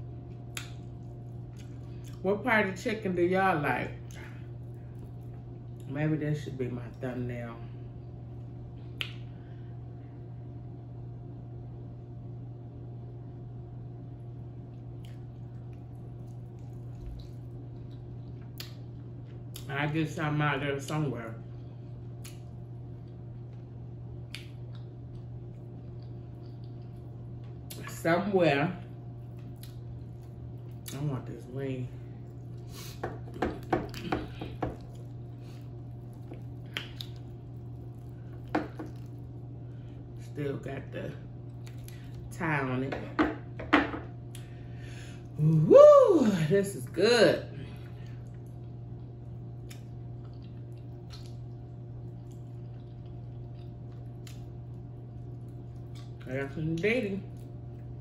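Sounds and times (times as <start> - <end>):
low hum: 0.0 - 58.0
wet eating clicks and smacks: 0.2 - 2.2, 8.4 - 9.3, 14.7 - 19.7, 22.0 - 27.9, 29.2 - 31.0, 32.2 - 39.4, 41.4 - 42.3, 47.8 - 56.2.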